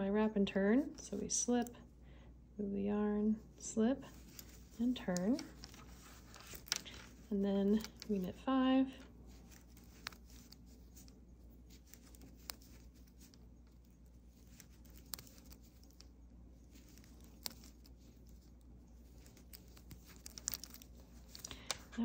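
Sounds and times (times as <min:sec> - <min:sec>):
low room hum: 0:00.0 - 0:22.0
yarn rustling: 0:03.4 - 0:22.0
knitting needles clicking: 0:04.1 - 0:08.3, 0:09.3 - 0:22.0.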